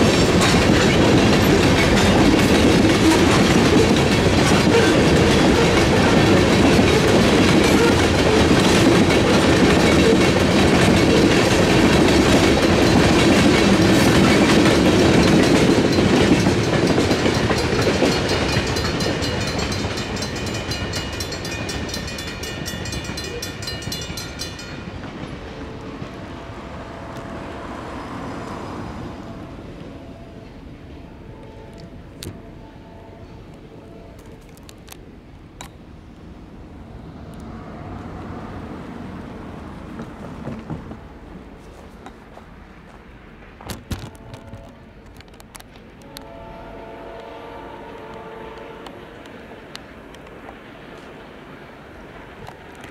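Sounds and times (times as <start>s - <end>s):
train wheels clattering: 0.0s - 26.3s
crossing bell ringing: 0.0s - 28.0s, 28.6s - 34.6s.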